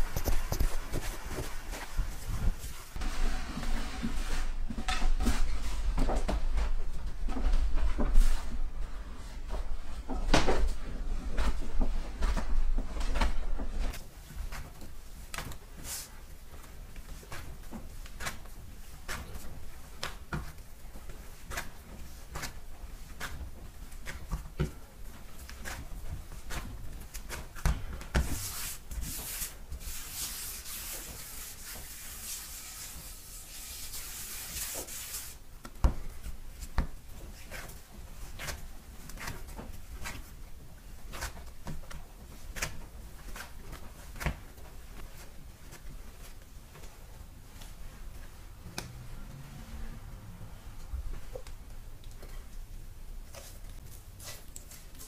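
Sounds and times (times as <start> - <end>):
hands kneading dough: 0.0 - 55.0
quick rubbing of dough: 28.2 - 35.5.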